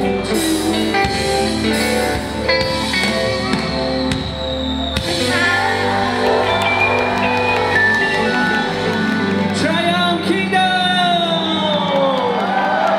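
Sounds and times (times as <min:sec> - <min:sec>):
live pop band and singer: 0:00.0 - 0:12.9
audience shouting: 0:02.6 - 0:09.7, 0:11.6 - 0:12.9.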